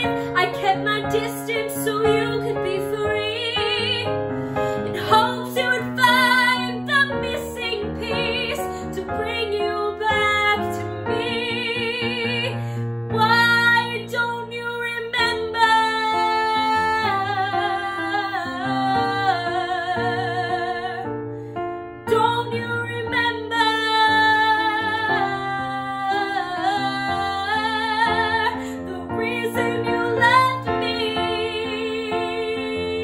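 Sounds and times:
woman singing pop ballad: 0.0s - 21.1s, 22.1s - 33.0s.

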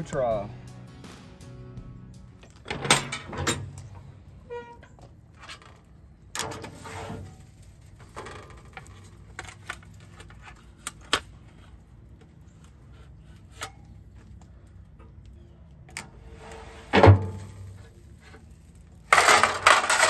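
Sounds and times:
metal clunk: 2.5s - 4.0s.

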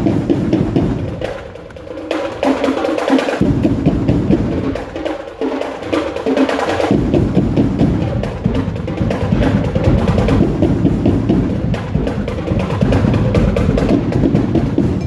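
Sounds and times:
bass drum hits: 3.4s - 4.9s, 6.9s - 15.0s.

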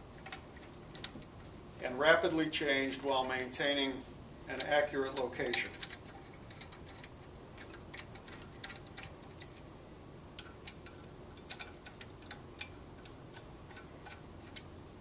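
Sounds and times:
hex wrench metallic clicks: 4.5s - 9.6s, 10.4s - 14.7s.

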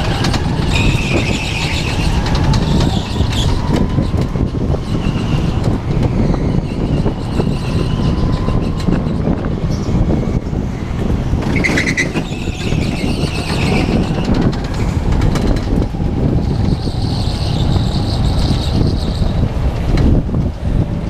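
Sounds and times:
go-kart engine rumble: 0.0s - 21.0s.

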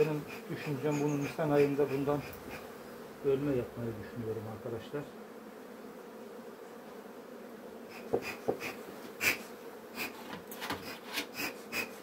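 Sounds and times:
bees humming: 0.0s - 12.0s
knocks: 8.1s - 8.7s.

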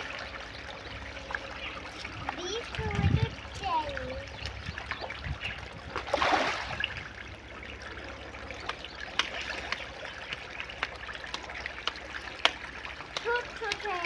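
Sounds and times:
fish splashing at water surface: 4.0s - 14.0s.

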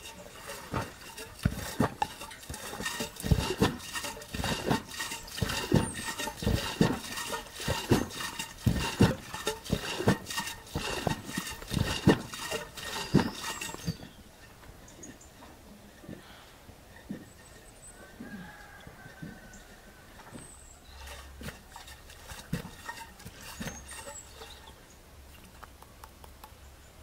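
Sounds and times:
cream sloshing in a butter churn: 0.0s - 14.4s, 16.0s - 24.8s.

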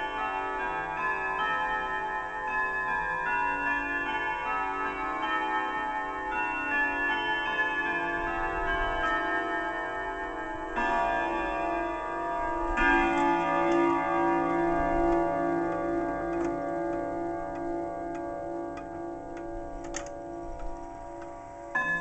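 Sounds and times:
clock chime melody: 0.0s - 22.0s
heavy clock strikes: 0.0s - 22.0s
clock ticking: 12.7s - 22.0s.

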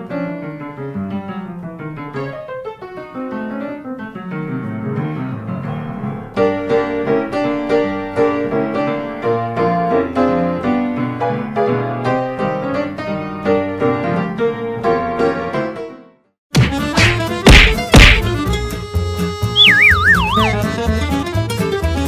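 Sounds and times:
piano music: 19.4s - 21.2s.

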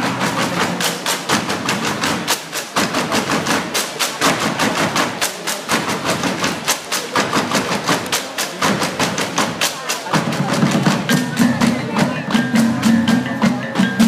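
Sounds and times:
rhythmic percussion music: 0.0s - 14.0s.

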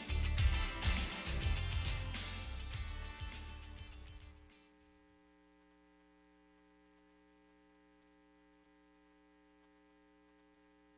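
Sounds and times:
faint electrical hum: 3.8s - 10.9s.

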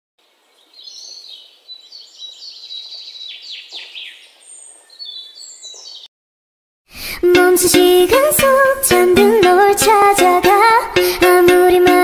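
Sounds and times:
songbirds chirping and singing: 0.2s - 6.1s.

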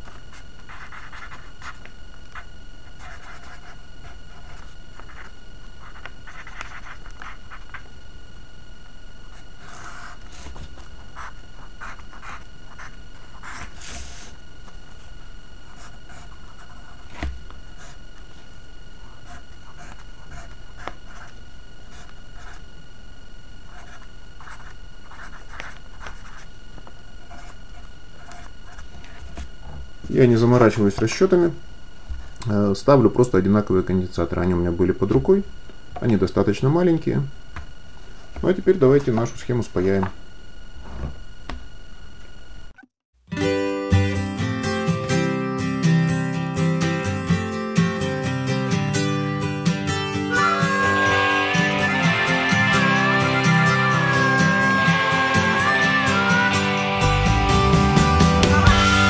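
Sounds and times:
steady low hum: 0.0s - 42.8s
pencil scratching on paper: 0.3s - 1.8s, 3.0s - 7.8s, 9.6s - 10.6s, 11.2s - 14.3s, 19.2s - 22.6s, 23.7s - 26.5s, 28.2s - 29.4s.

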